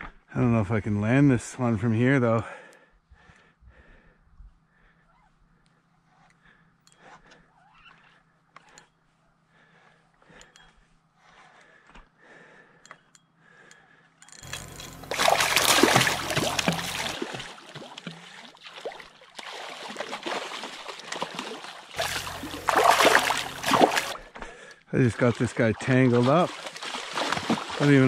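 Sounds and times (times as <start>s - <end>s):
fish splashing at water surface: 14.4s - 24.2s, 25.3s - 28.0s.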